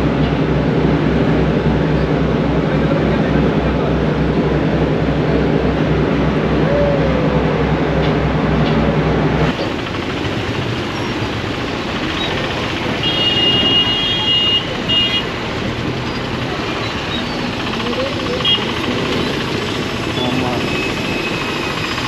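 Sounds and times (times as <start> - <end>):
large engine low throb: 0.0 - 13.3, 15.3 - 22.0
motorbikes and scooters rumbling: 0.0 - 22.0
vehicle horn honking: 13.0 - 15.3.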